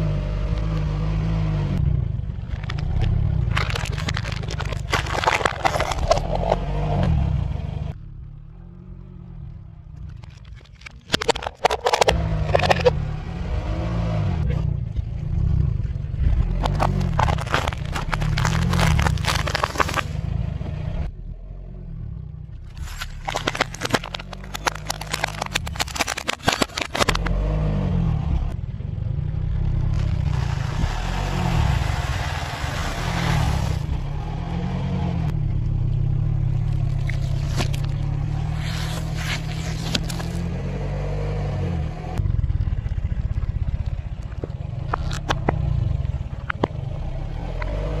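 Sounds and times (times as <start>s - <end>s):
car engine running: 0.0s - 48.0s
objects cracking under a wheel: 2.4s - 7.1s, 9.9s - 13.0s, 16.5s - 20.2s, 22.7s - 27.4s, 29.8s - 34.1s, 36.6s - 40.5s, 43.8s - 45.7s
plastic and glass cracking: 2.5s - 6.6s, 10.1s - 12.9s, 16.6s - 20.2s, 22.7s - 27.3s, 36.7s - 40.5s.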